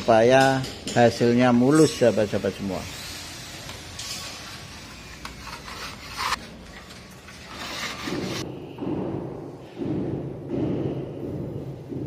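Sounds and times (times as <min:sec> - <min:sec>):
putty knife scraping: 0:05.1 - 0:08.4.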